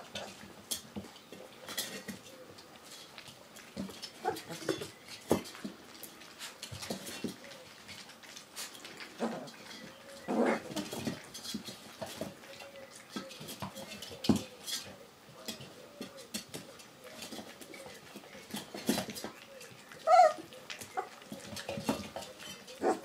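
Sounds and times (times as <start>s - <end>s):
puppies clicking against metal pan: 0.0s - 23.0s
puppies whimpering: 17.0s - 23.0s.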